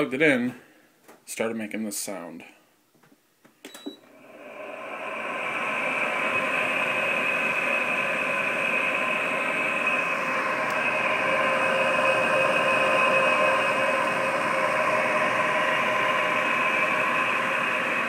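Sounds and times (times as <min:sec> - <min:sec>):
air conditioner fan whirring: 0:03.6 - 0:18.0
short beep: 0:03.7 - 0:04.0.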